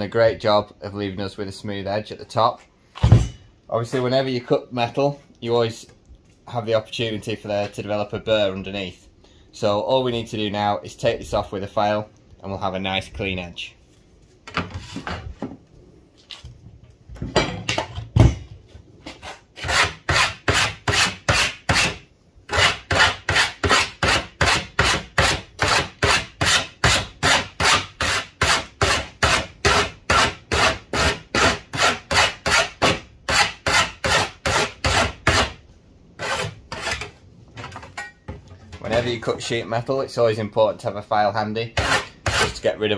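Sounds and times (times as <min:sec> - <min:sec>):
hand file rasping on metal: 0:19.2 - 0:35.6, 0:36.2 - 0:37.1, 0:41.8 - 0:42.6.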